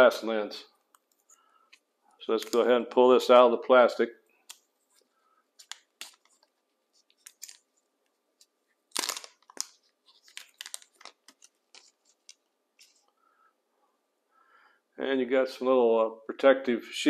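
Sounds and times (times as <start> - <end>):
plastic wrapping crinkling: 4.4 - 13.1.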